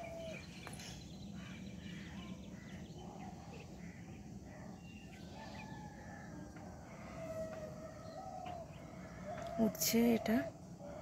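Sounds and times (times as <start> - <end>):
distant birds chirping: 0.0 - 11.0.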